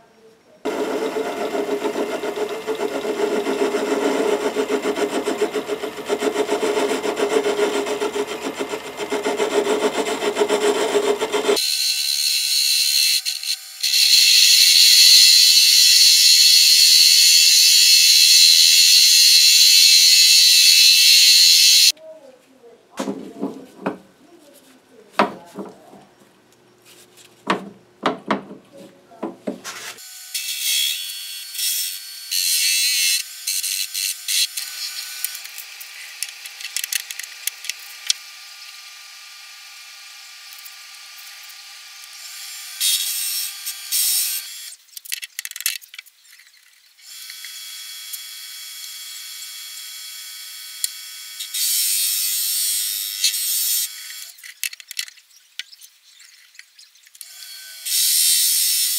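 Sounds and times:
bench lathe running: 0.7 - 12.4.

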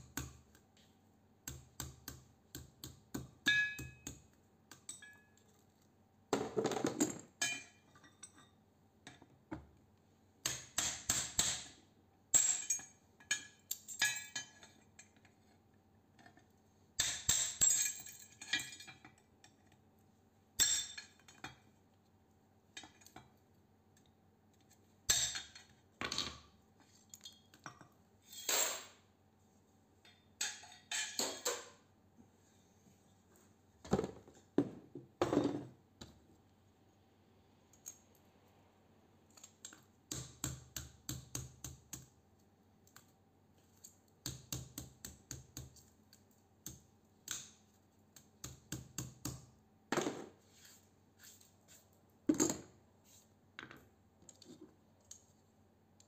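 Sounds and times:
hammer striking steel tube: 2.8 - 4.2.

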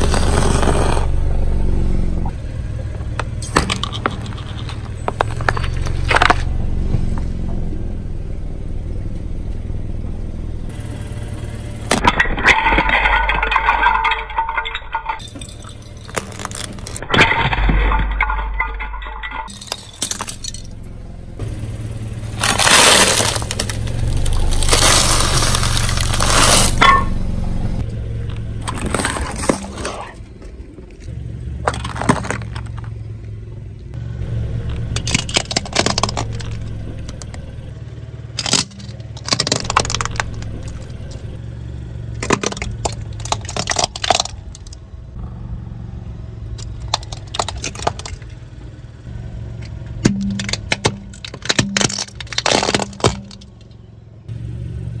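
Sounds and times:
toy cars cracking: 11.9 - 20.7, 22.4 - 26.8, 35.0 - 37.4, 38.4 - 41.2, 42.2 - 44.8, 46.6 - 48.3, 50.0 - 53.7
plastic cracking under tyre: 16.0 - 17.0, 22.4 - 26.8, 31.6 - 33.0, 35.0 - 37.4, 38.4 - 41.2, 42.2 - 44.8, 46.6 - 48.4, 50.0 - 53.8.

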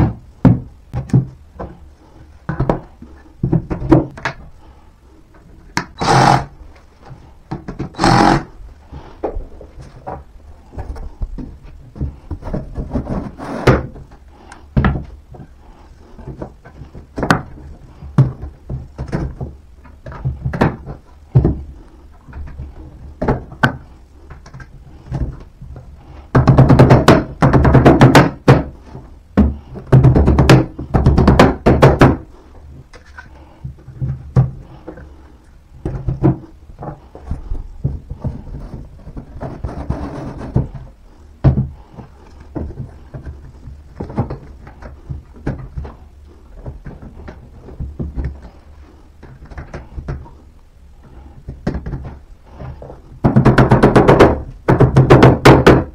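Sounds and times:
desk panels thudding and knocking: 0.0 - 1.8, 2.5 - 4.4, 26.3 - 28.8, 29.4 - 32.3, 37.8 - 41.8, 53.2 - 55.9.

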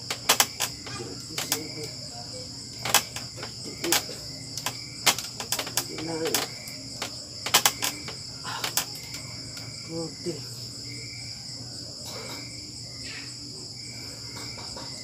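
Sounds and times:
wooden bench knocking and creaking: 0.0 - 2.0, 2.7 - 9.3
crickets chirping: 0.0 - 15.0.

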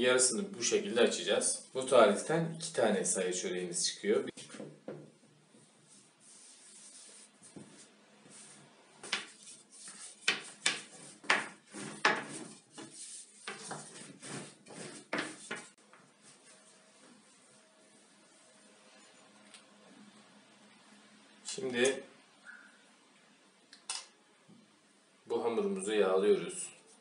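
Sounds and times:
rolling pin rubbing on dough: 5.9 - 17.6.

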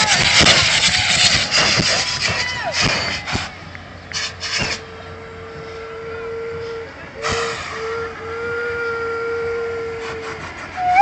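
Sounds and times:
whistle-like vehicle horn: 4.4 - 11.0.

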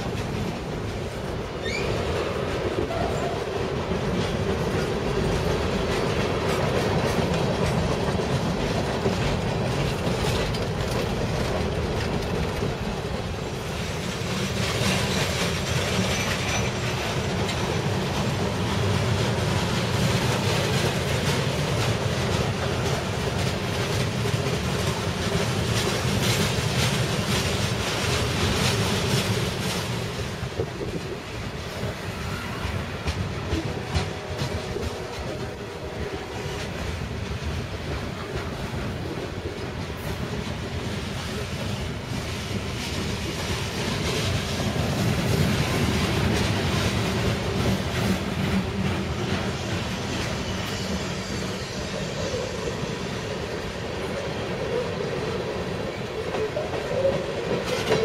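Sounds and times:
train wheels clattering over rail joints: 0.0 - 58.0.

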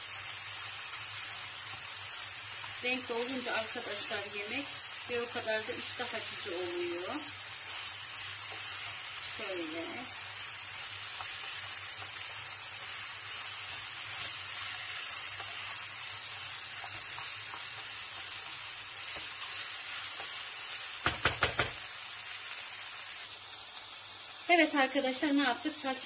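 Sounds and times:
food sizzling in a frying pan: 0.0 - 26.0
spatula stirring: 3.6 - 20.5.

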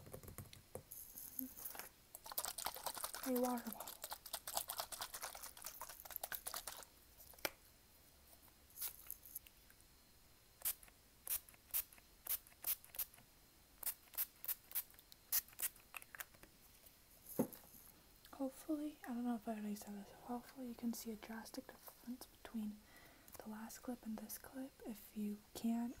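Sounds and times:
plastic bottle crinkling: 1.3 - 7.5.

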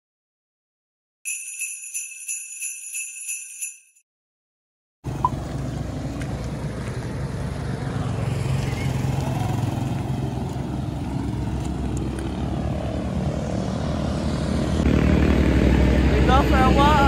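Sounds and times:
bells jingling: 1.3 - 4.0
roadside traffic rumble: 5.0 - 17.0.

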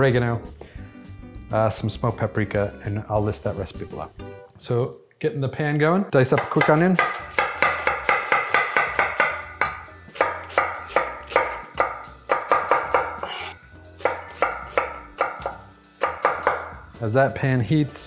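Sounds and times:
knife chopping on wooden board: 6.3 - 16.8.

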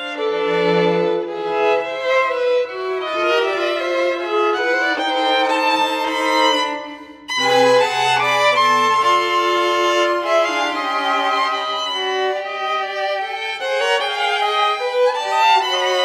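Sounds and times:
bowed strings music: 0.0 - 16.0.

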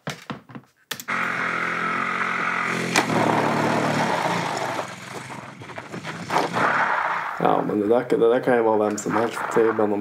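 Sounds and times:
small motorcycle engine running: 1.1 - 6.9.

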